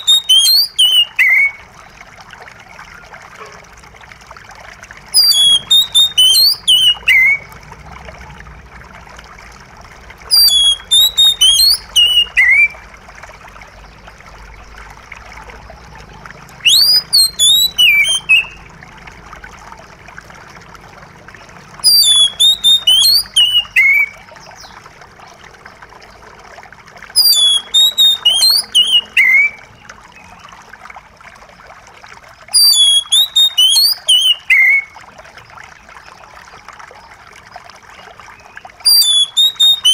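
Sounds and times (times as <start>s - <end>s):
bird singing whistled phrases: 0.0s - 1.6s, 5.1s - 7.5s, 10.3s - 12.8s, 16.6s - 18.6s, 21.8s - 24.8s, 27.2s - 29.8s, 32.5s - 35.0s, 38.4s - 39.9s
trickle of running water: 0.0s - 39.9s.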